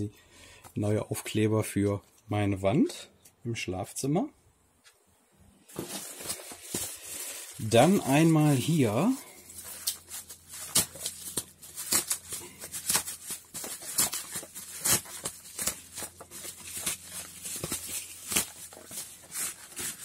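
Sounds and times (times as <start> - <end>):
toy packaging rustling: 5.7 - 20.0.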